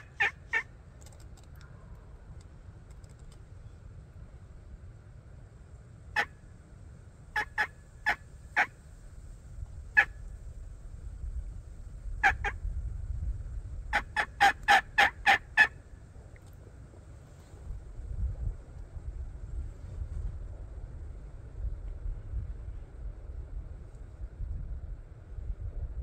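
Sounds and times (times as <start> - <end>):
turkey call yelps: 0.0 - 0.7, 6.2 - 6.4, 7.3 - 8.8, 12.2 - 12.6, 13.9 - 15.8.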